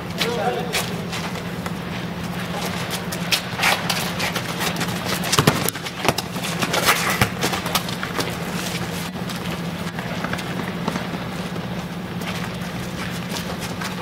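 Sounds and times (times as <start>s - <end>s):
footsteps running on asphalt: 0.7s - 14.0s
football being kicked: 5.2s - 6.4s, 7.1s - 7.8s.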